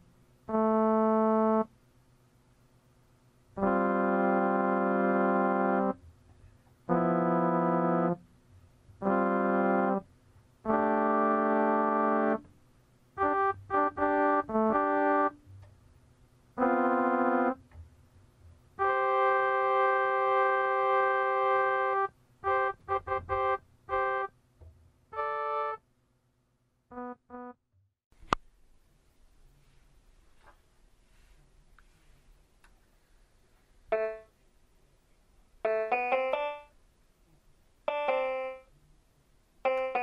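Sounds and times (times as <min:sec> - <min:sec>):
keyboard organ-like chords: 0:00.5 - 0:01.7, 0:03.6 - 0:06.0, 0:06.9 - 0:08.2, 0:09.0 - 0:10.0, 0:10.6 - 0:12.5, 0:13.2 - 0:15.6, 0:16.6 - 0:17.6, 0:18.8 - 0:24.3, 0:25.1 - 0:25.8, 0:26.9 - 0:27.6, 0:33.9 - 0:34.3, 0:35.6 - 0:36.7, 0:37.9 - 0:38.7, 0:39.6 - 0:40.0.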